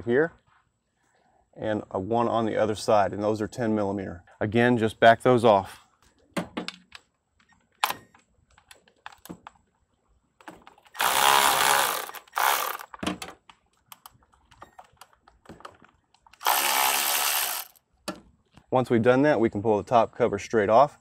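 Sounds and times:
electric ratchet motor running: 10.9s - 12.9s, 16.4s - 17.8s.

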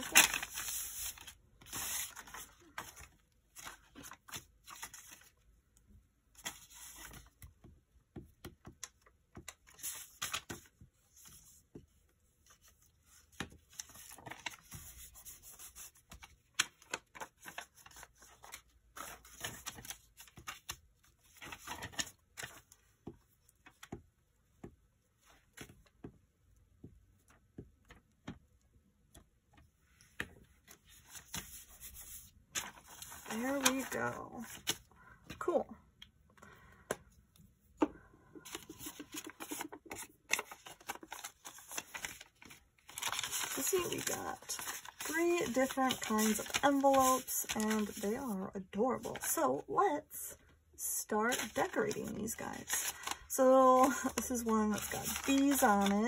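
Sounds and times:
paper rustling and sliding: 0.0s - 5.3s, 29.9s - 34.8s, 38.4s - 48.4s, 51.3s - 56.0s.

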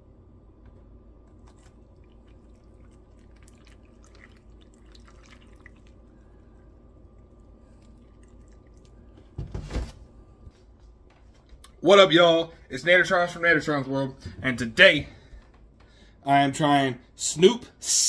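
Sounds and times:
steady low hum: 0.0s - 18.0s
milk splashing onto cereal: 1.3s - 9.4s.

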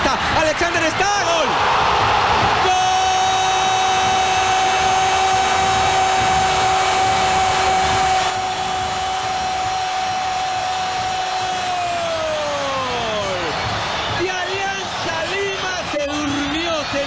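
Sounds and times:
stadium crowd noise: 0.0s - 17.0s
commentator shouting goal: 14.2s - 17.0s.

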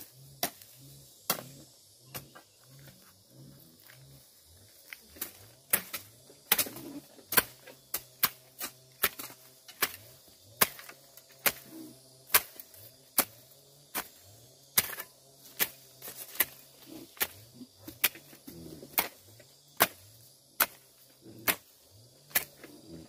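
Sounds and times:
tool striking sharp blows: 7.3s - 14.2s.

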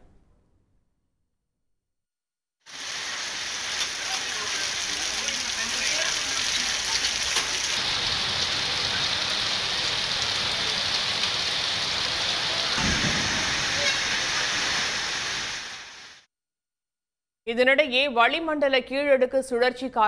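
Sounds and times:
heavy rain on wet street: 2.7s - 16.2s.

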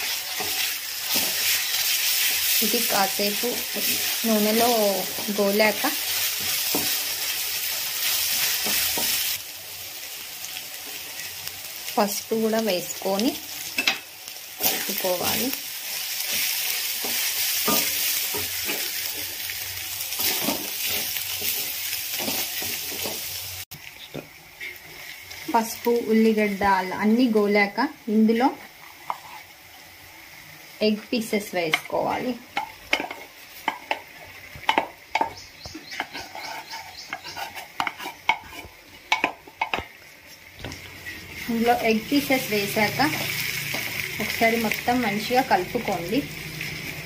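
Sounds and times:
spatula scraping pan: 0.0s - 9.4s, 16.0s - 19.4s, 20.1s - 23.3s, 28.8s - 29.5s, 34.7s - 39.8s
onions sizzling in hot oil: 0.0s - 47.0s
spoon clinking and scraping pan: 13.6s - 14.8s, 16.2s - 19.3s, 34.6s - 39.8s.

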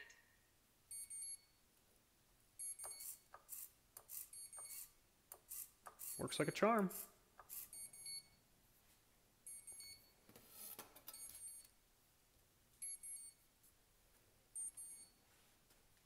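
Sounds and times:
high-pitched electronic beeps: 0.9s - 1.4s, 2.6s - 3.2s, 4.3s - 4.9s, 7.6s - 8.4s, 9.5s - 10.1s
soft rustle: 8.7s - 9.1s, 15.1s - 16.0s.

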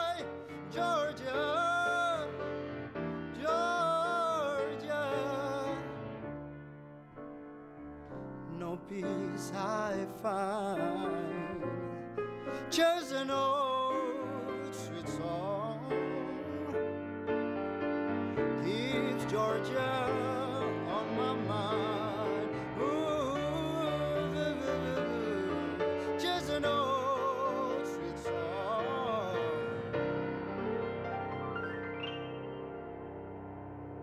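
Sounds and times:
man singing with vibrato: 0.0s - 6.1s, 8.5s - 17.0s, 18.4s - 30.1s
grand piano blues ballad: 0.0s - 34.0s.

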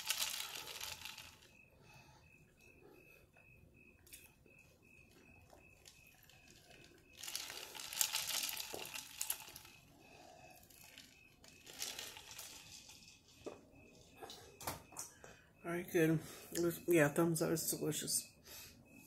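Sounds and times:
paper wrapper crinkling: 0.0s - 1.4s, 5.8s - 9.7s, 10.6s - 13.1s.

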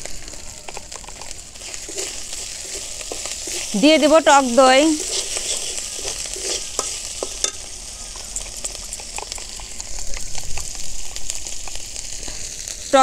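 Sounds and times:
spice paste sizzling in oil: 0.0s - 13.0s
metal spatula scraping pan: 0.7s - 7.7s.

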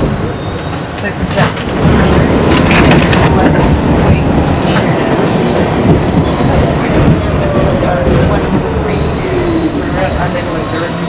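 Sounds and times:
train wheel squeal: 0.0s - 1.5s, 5.7s - 7.1s, 8.7s - 11.0s
subway train rumble and clatter: 0.0s - 11.0s.

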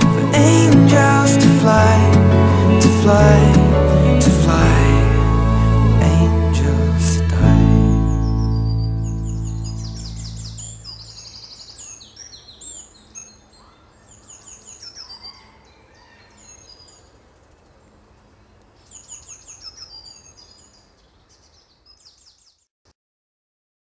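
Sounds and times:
birds chirping and trilling: 7.6s - 22.7s.

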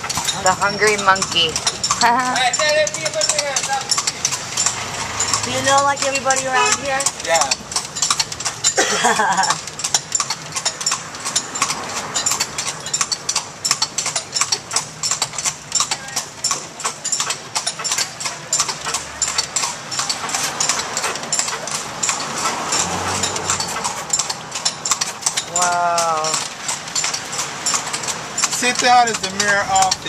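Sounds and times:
horse hooves on pavement: 0.0s - 30.0s
motor vehicle engine running: 0.0s - 30.0s.

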